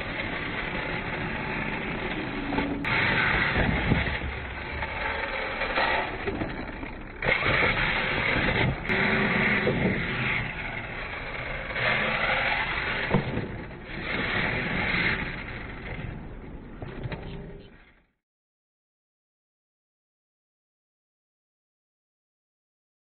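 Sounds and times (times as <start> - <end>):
toy truck motor whining: 0.0 - 16.3
truck landing thump: 13.0 - 13.7.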